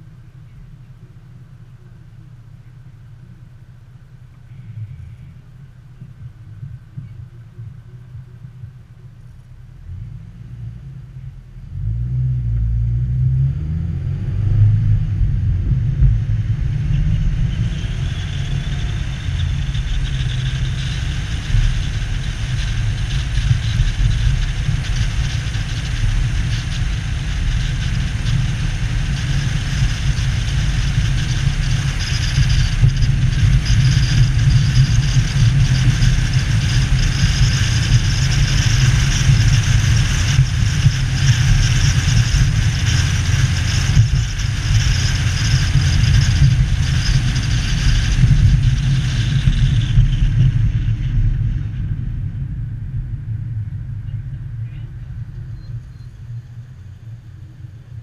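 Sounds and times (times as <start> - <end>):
car engine idling: 0.0 - 13.1, 14.8 - 58.0
loud low engine rumble: 0.0 - 58.0
tyre and wind noise: 13.1 - 56.9.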